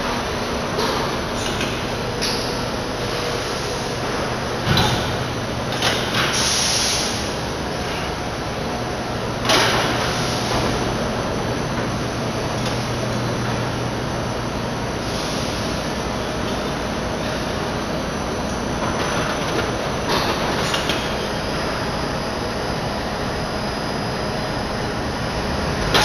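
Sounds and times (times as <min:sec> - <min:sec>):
machine hum: 0:00.0 - 0:26.0.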